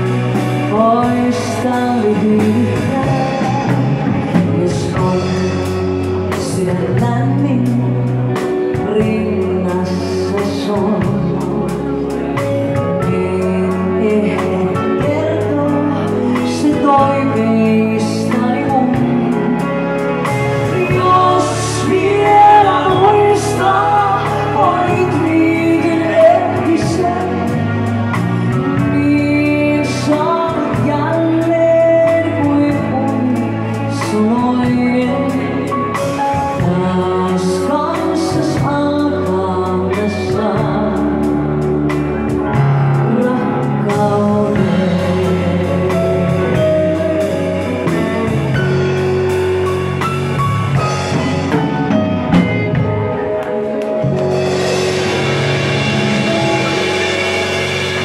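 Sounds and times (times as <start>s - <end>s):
woman singing: 0.0s - 49.8s
live band playing: 0.0s - 58.0s.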